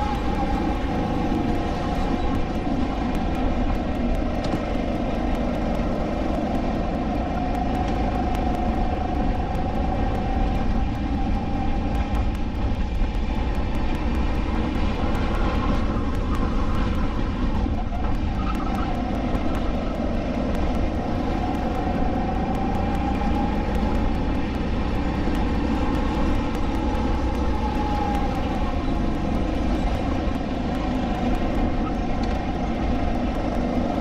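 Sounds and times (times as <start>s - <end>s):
kart engine running: 0.0s - 34.0s.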